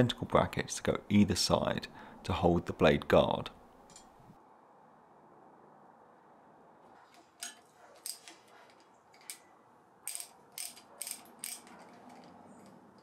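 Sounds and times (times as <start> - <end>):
wrench clicking on metal: 10.0 - 13.0.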